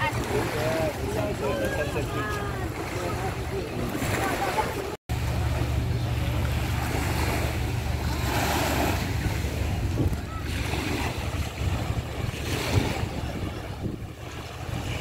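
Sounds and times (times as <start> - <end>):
waves washing onto shore: 0.0 - 15.0
wind rumble on microphone: 5.1 - 15.0.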